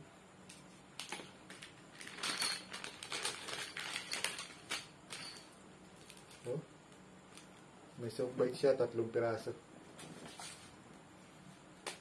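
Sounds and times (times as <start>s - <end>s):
plastic packaging crinkling: 1.9s - 5.3s.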